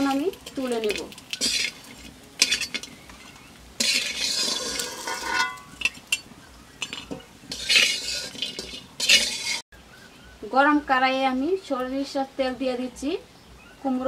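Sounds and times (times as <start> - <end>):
metal spatula scraping metal pan: 0.9 - 9.7.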